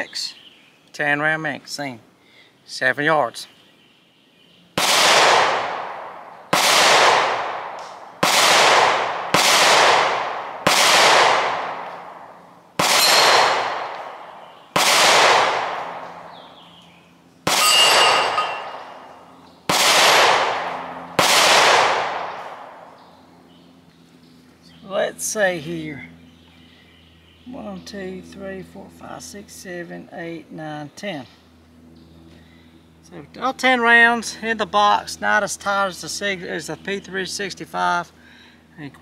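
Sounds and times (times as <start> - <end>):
pistol shots: 4.8 - 16.4, 17.4 - 19.1, 19.7 - 22.9.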